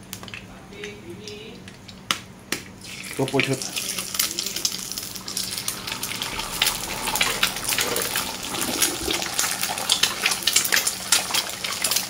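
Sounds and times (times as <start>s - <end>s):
oil sizzling with crackling pops: 0.0s - 12.0s.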